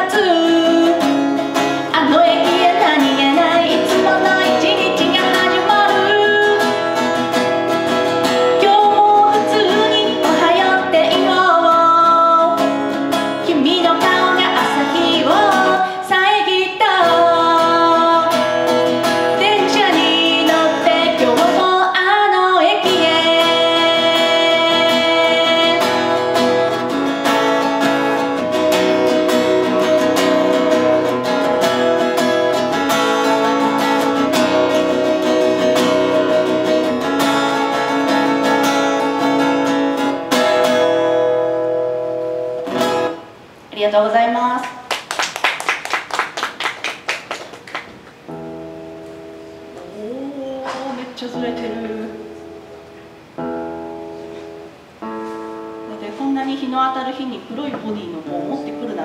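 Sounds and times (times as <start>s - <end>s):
woman singing into microphone: 0.0s - 6.9s, 8.6s - 26.8s, 49.8s - 52.6s
acoustic guitar strumming: 0.0s - 43.7s, 46.5s - 59.0s.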